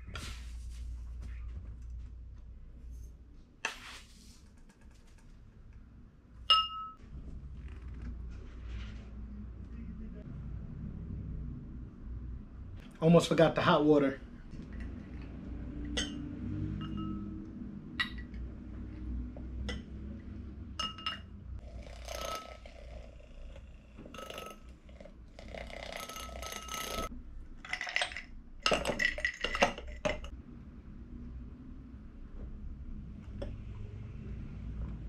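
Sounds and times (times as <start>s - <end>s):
spoon clinking against mug: 6.5s - 7.0s, 20.8s - 21.3s.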